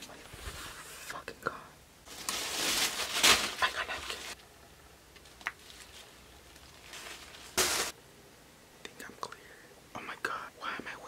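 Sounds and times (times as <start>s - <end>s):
paper towel rustling: 2.1s - 4.4s, 5.6s - 8.0s.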